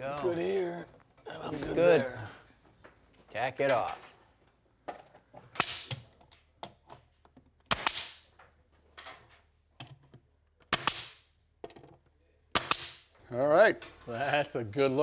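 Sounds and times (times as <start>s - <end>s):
nail gun shots: 5.6s - 6.0s, 7.7s - 8.3s, 10.7s - 11.2s, 12.5s - 13.1s.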